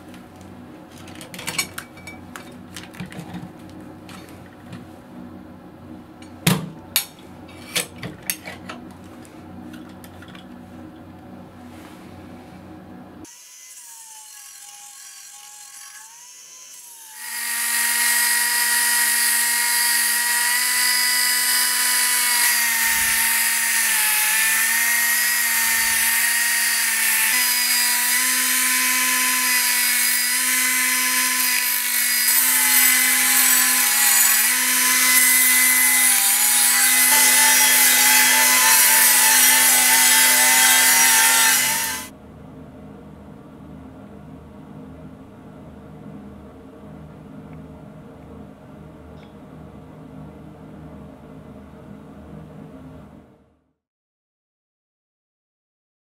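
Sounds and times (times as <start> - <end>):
pneumatic belt sander on metal: 13.3 - 42.1.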